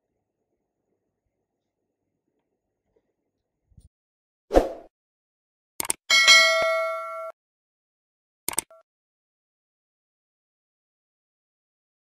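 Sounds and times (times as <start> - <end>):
notification bell ding: 6.1 - 7.3
double mouse click: 8.5 - 8.7.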